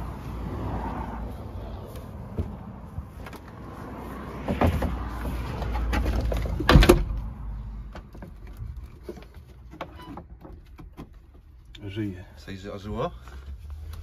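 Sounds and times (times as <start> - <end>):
car battery knocks and scrapes: 4.4 - 7.2.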